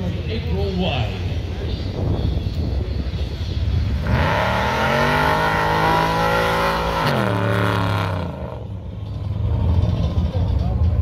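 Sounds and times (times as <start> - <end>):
muscle car engine accelerating: 3.5 - 11.0.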